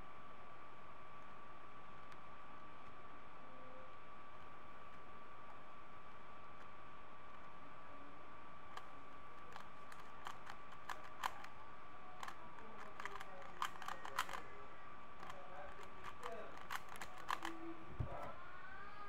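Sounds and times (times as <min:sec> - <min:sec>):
puzzle cube clicking: 0:08.8 - 0:11.5, 0:12.2 - 0:14.6, 0:15.2 - 0:17.7.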